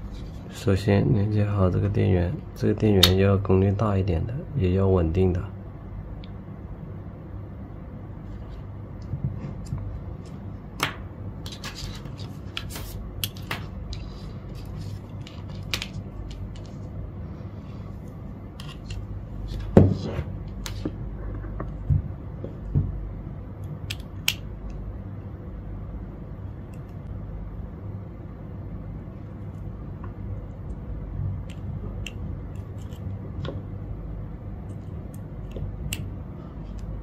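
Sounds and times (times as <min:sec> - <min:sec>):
low hum: 0:00.0 - 0:37.0.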